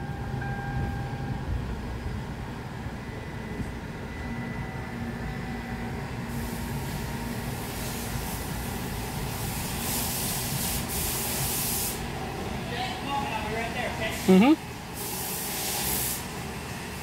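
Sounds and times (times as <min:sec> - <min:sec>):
car rumble from inside cabin: 0:00.0 - 0:03.0
spraying water hiss: 0:06.3 - 0:12.2, 0:14.0 - 0:17.0.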